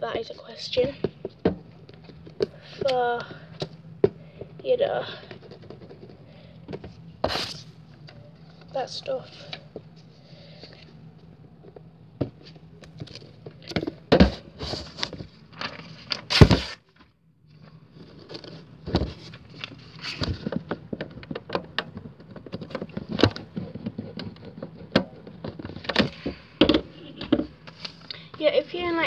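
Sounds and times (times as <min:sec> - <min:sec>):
handling knocks and rustles: 0:10.6 - 0:28.0.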